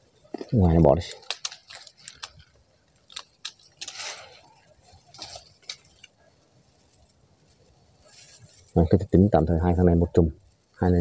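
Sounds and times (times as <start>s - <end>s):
leaves rustling: 0.0s - 11.0s
flower clusters snapping off: 0.4s - 6.2s.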